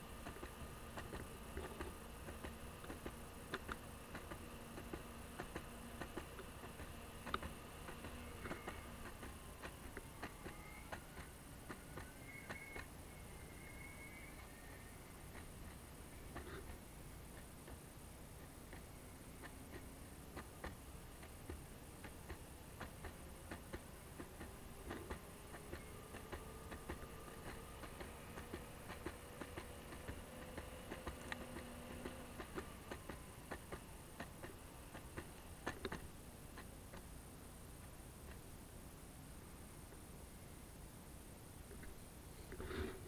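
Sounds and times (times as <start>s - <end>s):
skateboard wheels ticking and clicking: 0.0s - 37.2s
faint motor whine: 0.0s - 43.0s.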